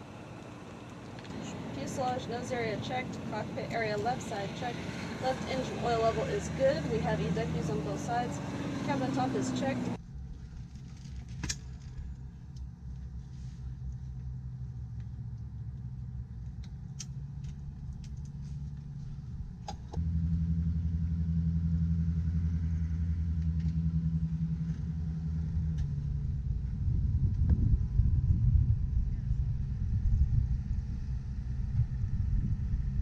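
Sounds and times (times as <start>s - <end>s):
low machine hum: 0.0s - 33.0s.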